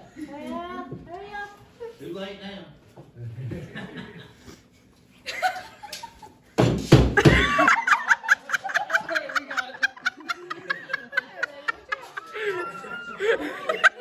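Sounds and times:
group of people laughing: 3.2s - 4.6s, 5.2s - 6.4s, 7.2s - 14.0s.

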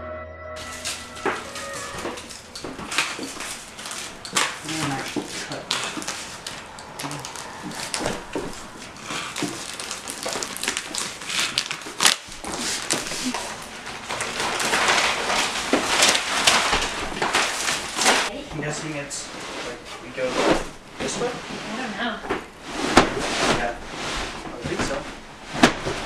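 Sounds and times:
plastic wrapping crinkling: 0.6s - 18.3s.

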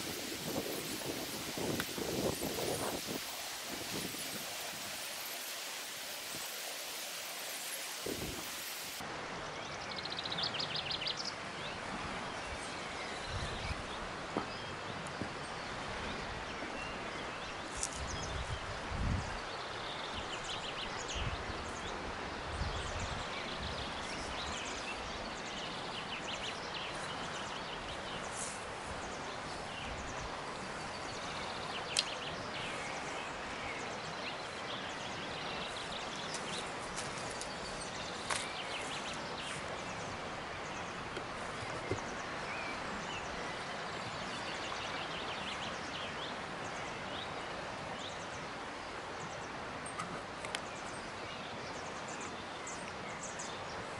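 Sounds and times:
birds chirping: 0.0s - 9.0s.

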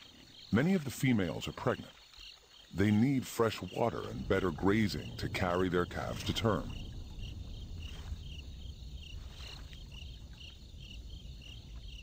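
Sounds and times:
crickets chirping: 0.0s - 12.0s
low background rumble: 3.8s - 12.0s.

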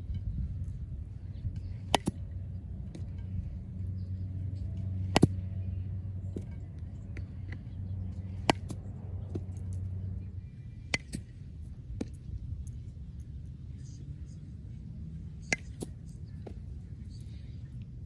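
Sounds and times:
steady low rumble: 0.0s - 18.0s
baseball smacking into glove: 5.0s - 5.4s.

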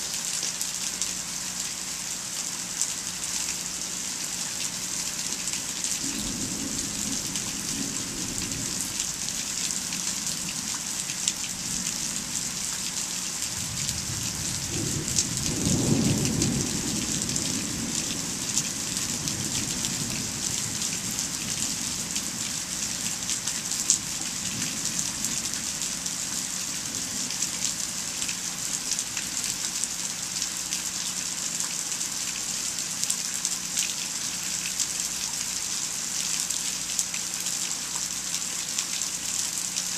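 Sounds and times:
steady rain: 0.0s - 39.9s
thunder rumbling: 6.0s - 10.5s, 13.6s - 22.6s.

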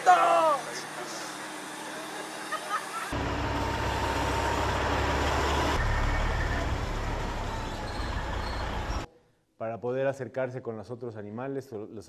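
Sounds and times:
diesel truck engine running: 3.1s - 9.1s.

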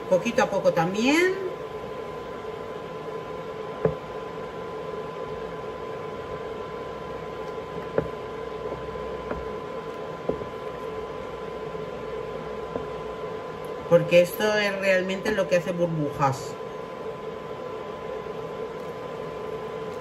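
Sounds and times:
steady appliance hum: 0.0s - 20.0s
wooden spoon stirring thick mixture: 1.6s - 14.4s.

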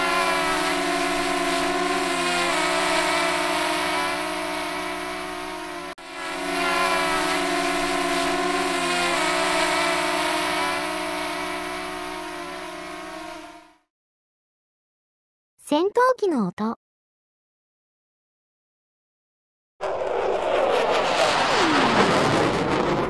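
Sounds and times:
drone propellers whining: 0.0s - 13.7s, 19.8s - 23.0s.

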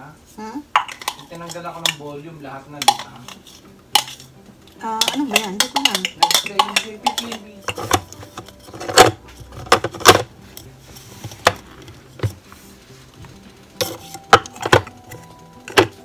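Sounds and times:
hard plastic clattering and knocks: 6.2s - 10.3s, 13.8s - 15.0s.

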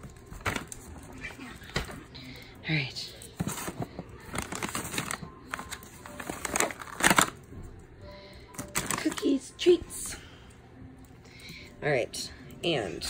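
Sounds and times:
plastic packaging crinkling: 3.3s - 7.5s, 8.5s - 9.3s.

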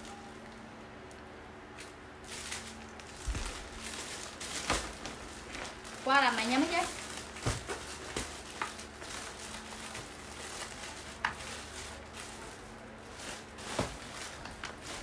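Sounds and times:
faint steady hum: 0.0s - 15.0s
fabric rustling: 2.3s - 15.0s.

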